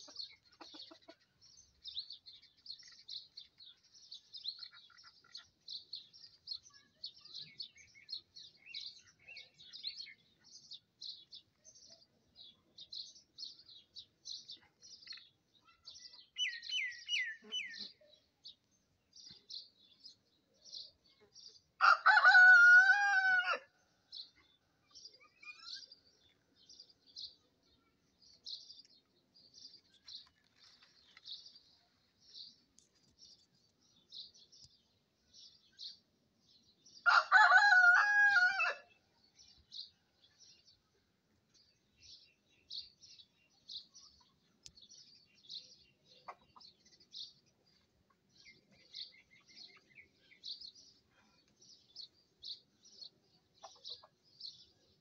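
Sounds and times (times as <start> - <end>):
small birds chirping: 0.0 - 55.0
rooster crowing: 21.8 - 23.7, 37.1 - 38.8.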